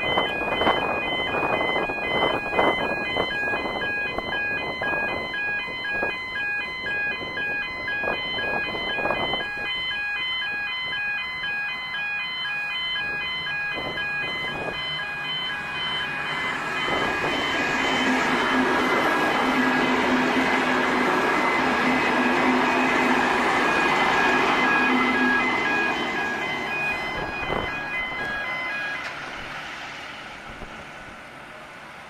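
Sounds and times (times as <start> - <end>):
electronic warning bell ringing: 0.0 - 29.4
diesel railcar approaching: 0.0 - 32.0
wind on microphone: 6.9 - 9.8, 26.9 - 28.4.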